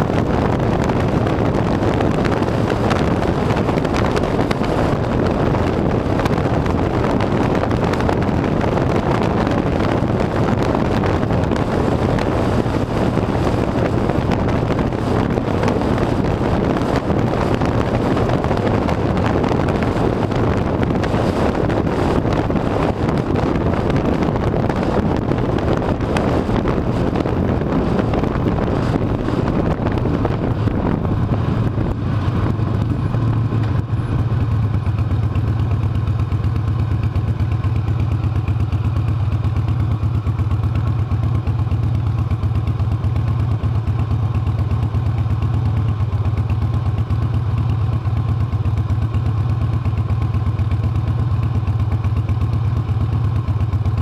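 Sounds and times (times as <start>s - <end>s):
motorcycle engine running: 0.0s - 54.0s
wind rushing over microphone: 0.0s - 54.0s.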